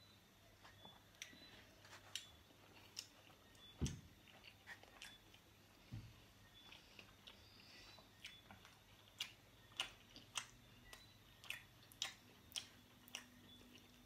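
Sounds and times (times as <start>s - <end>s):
chewing mouth clicks and smacks: 2.0s - 5.4s, 6.6s - 14.0s.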